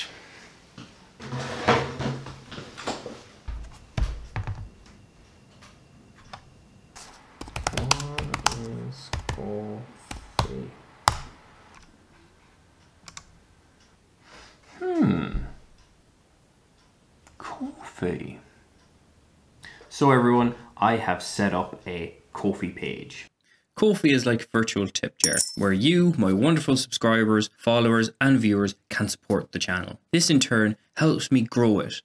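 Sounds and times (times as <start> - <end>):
laptop keyboard typing: 7.2 - 11.8, 13.0 - 13.3.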